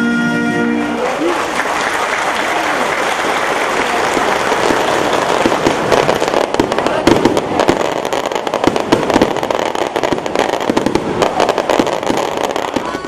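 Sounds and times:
applause: 0.6 - 6.8
fireworks bursting: 1.6 - 13.0.

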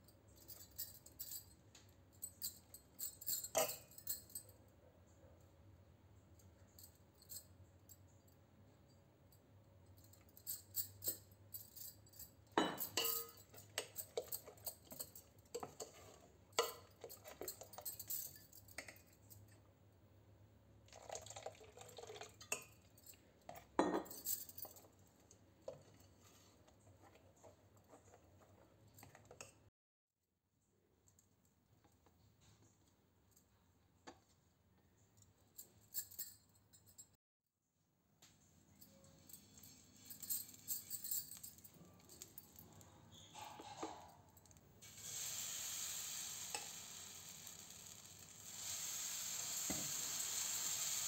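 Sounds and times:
spoon clinking against steel bowl: 3.3 - 4.2, 12.6 - 19.0
spoon stirring thick batter: 13.3 - 17.7.

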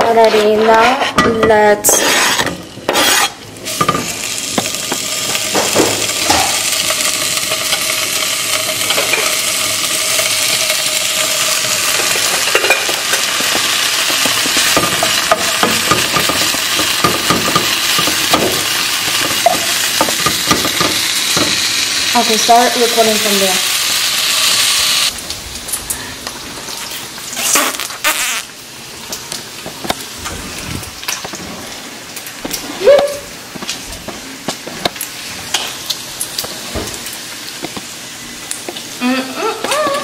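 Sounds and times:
wooden spatula scraping a pan: 0.0 - 3.4
bacon sizzling in a skillet: 0.0 - 40.0.

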